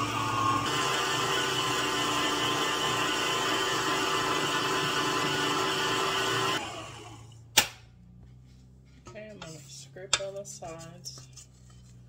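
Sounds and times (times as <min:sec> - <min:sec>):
electric mixer running: 0:00.0 - 0:07.4.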